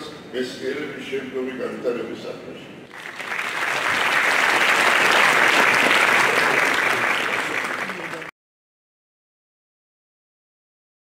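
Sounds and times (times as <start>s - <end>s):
audience applauding: 2.9s - 8.3s.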